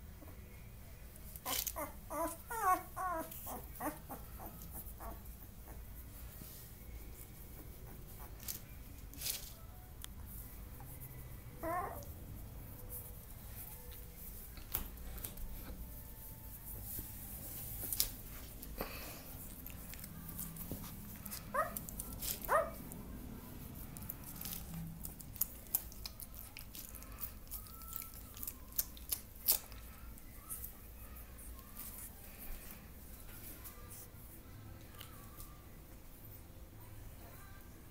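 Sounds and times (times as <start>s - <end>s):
puppy squeaking: 1.4s - 5.8s, 11.6s - 12.1s
puppy nursing clicks and smacks: 24.0s - 30.3s.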